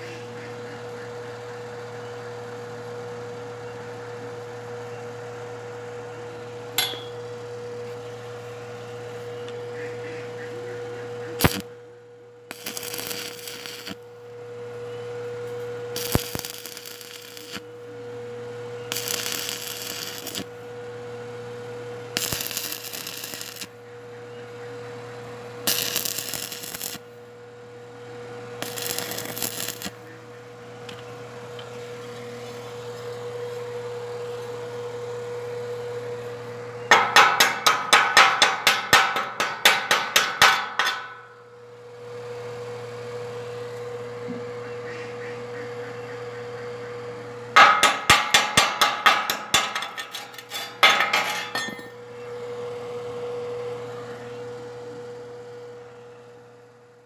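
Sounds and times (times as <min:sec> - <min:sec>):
electrical hum: 0:00.0 - 0:56.7
sharp metal knocks: 0:06.8 - 0:07.2, 0:36.9 - 0:41.3, 0:47.6 - 0:51.9
welding arc crackling: 0:11.4 - 0:11.7, 0:12.5 - 0:14.0, 0:15.9 - 0:17.7, 0:18.9 - 0:20.5, 0:22.2 - 0:23.7, 0:25.7 - 0:27.1, 0:28.6 - 0:30.0, 0:36.9 - 0:41.3, 0:47.6 - 0:51.9.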